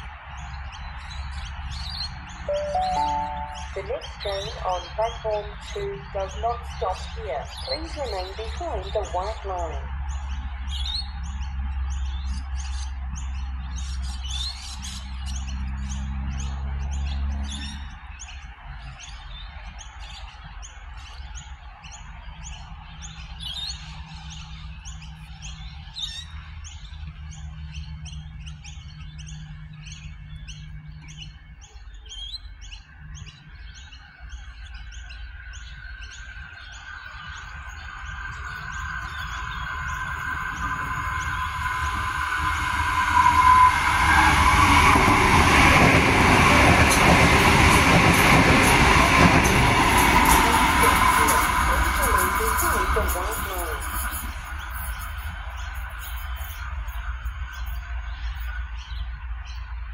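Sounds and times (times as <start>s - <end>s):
small birds chirping: 0.0s - 59.9s
electric train whining: 2.5s - 10.0s, 36.4s - 58.0s.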